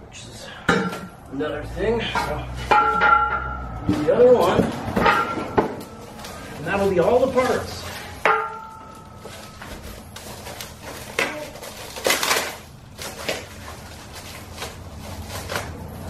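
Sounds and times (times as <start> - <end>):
steel frame clanking: 2.0 - 6.0
packaging wrap rustling and tearing: 9.2 - 16.0.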